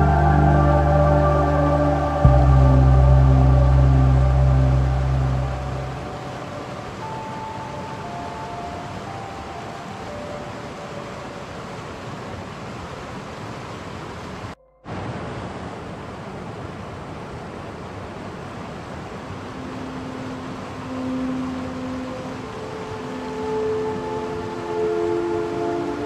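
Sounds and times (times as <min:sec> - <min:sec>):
faint ambient music: 0:00.0 - 0:12.1, 0:19.1 - 0:26.0
stream rushing over stones: 0:00.0 - 0:26.0.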